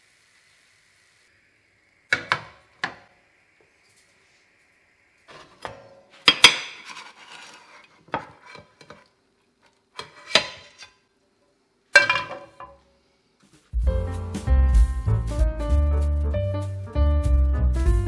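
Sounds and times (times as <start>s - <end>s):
frying pan clanking on grate: 2.1s - 3.0s.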